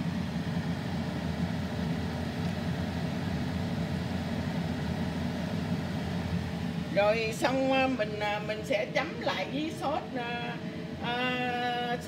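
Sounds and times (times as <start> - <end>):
oil sizzling and bubbling: 0.0 - 7.4.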